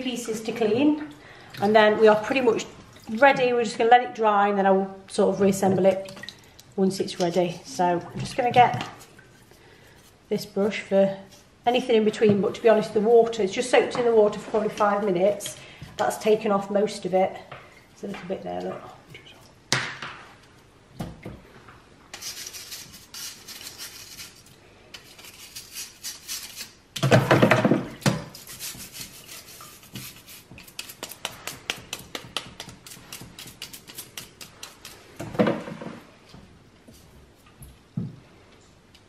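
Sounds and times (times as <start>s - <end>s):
bristle brush scrubbing plastic: 28.3s - 35.1s.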